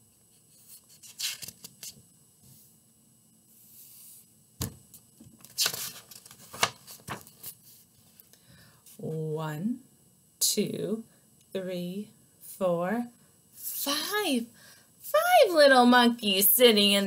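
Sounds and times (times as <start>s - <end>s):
paper pages rustling: 0.5s - 2.0s, 5.4s - 8.2s
paper crackling: 0.8s - 1.9s, 5.4s - 7.6s.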